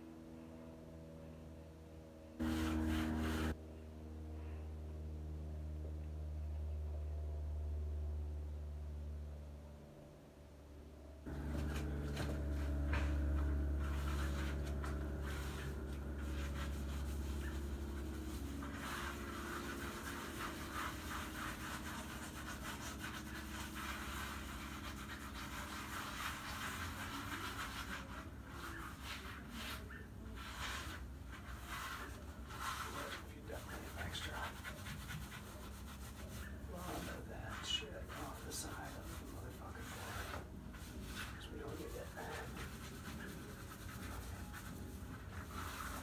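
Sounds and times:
low hum: 0.0s - 26.6s
grout scrubbed over tile: 2.4s - 3.6s, 11.3s - 46.0s.

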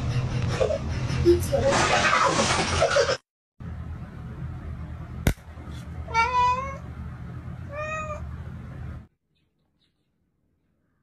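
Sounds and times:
steady low hum: 3.6s - 9.1s
cat meowing: 6.1s - 6.8s, 7.7s - 8.2s.

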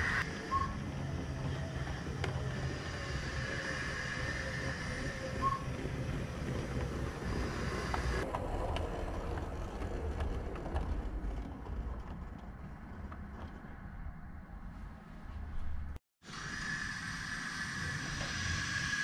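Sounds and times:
model train rumbling: 0.0s - 13.2s
clicking over rail joints: 0.5s - 14.3s.

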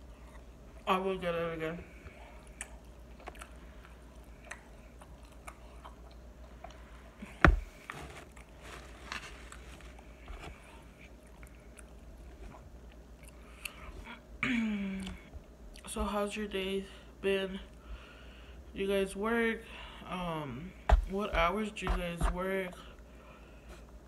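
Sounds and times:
person chewing food: 0.0s - 0.8s, 2.0s - 14.2s
low steady hum: 0.0s - 24.0s.

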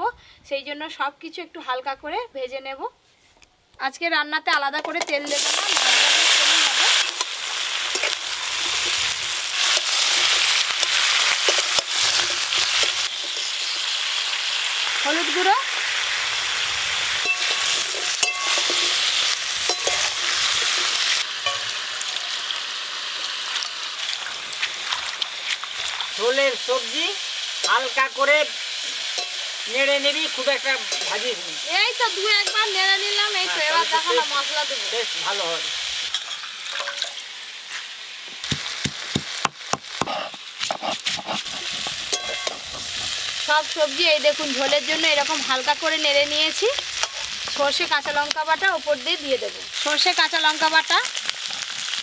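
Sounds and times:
vegetables sizzling in a pan: 4.5s - 52.0s
metal spatula clanking on pan: 17.2s - 21.8s, 29.1s - 29.4s, 30.7s - 31.3s, 42.0s - 42.9s
water pouring over leaves: 21.0s - 27.2s.

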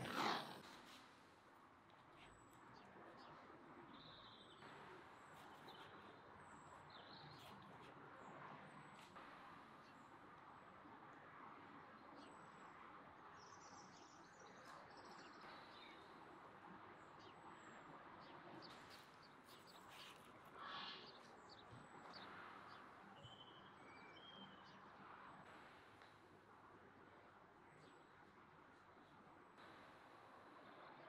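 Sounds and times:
faint outdoor background noise: 0.0s - 31.0s
faint bird chirps: 18.2s - 25.3s.

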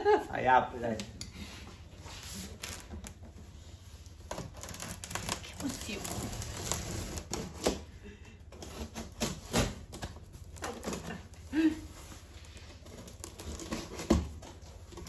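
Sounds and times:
cutter slitting packing tape: 4.3s - 7.8s.

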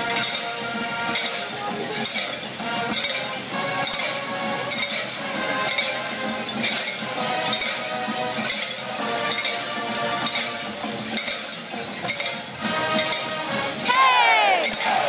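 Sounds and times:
crowd ringing cowbells: 0.0s - 15.0s.

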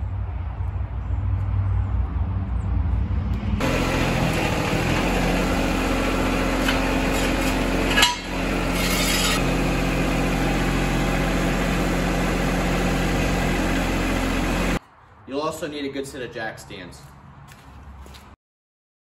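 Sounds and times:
engine idling: 3.6s - 14.8s.

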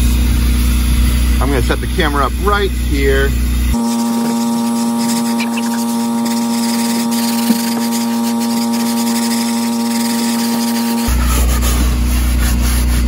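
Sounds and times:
steady electronic tone: 3.8s - 11.2s.

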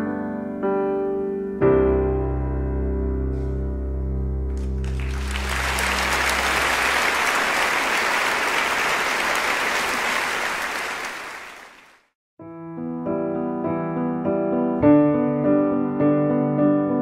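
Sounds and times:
piano piece: 0.0s - 9.4s, 12.4s - 17.0s
crowd applauding: 4.7s - 12.1s.

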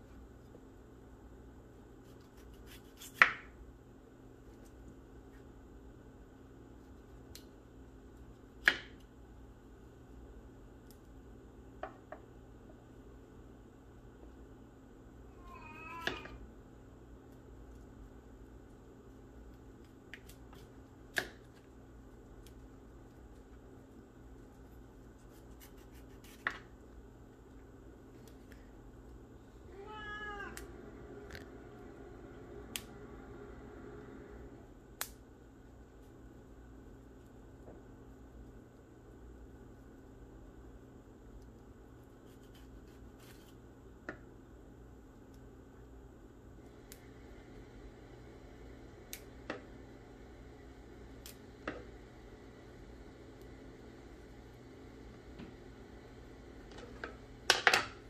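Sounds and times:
cat meowing: 15.3s - 16.4s, 29.7s - 30.8s.

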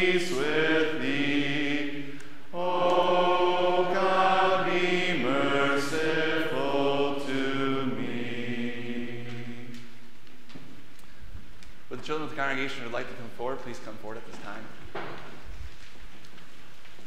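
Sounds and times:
unaccompanied church singing: 0.0s - 10.2s.

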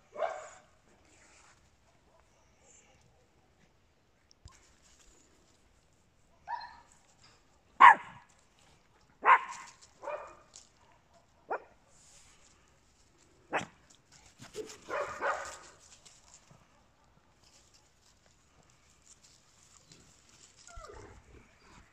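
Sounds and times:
small dog barking: 0.1s - 0.7s, 6.4s - 6.9s, 7.8s - 8.3s, 9.2s - 10.5s, 11.1s - 11.8s, 13.5s - 13.8s, 14.6s - 15.7s.

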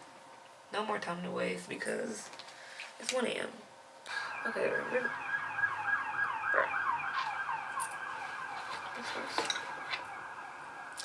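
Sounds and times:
siren with fast falling sweeps: 4.2s - 11.0s.

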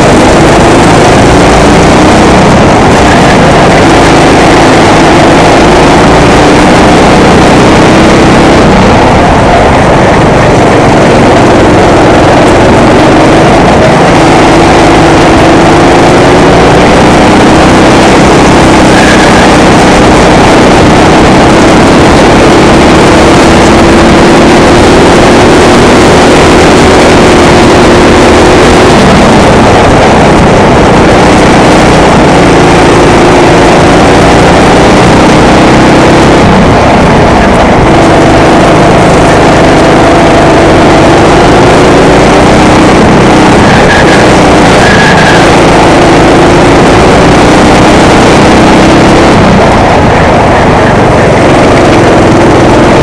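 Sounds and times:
go-kart engine at speed: 0.0s - 53.0s
wind rush on microphone: 0.0s - 53.0s.

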